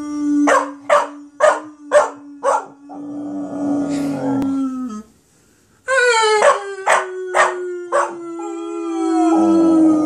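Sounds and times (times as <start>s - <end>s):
puppy howling: 0.4s - 3.5s, 5.9s - 10.0s.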